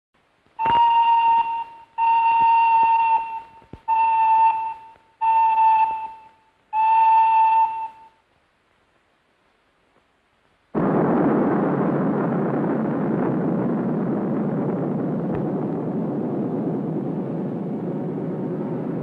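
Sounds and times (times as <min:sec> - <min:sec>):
whistle blasts: 0:00.6 - 0:08.2.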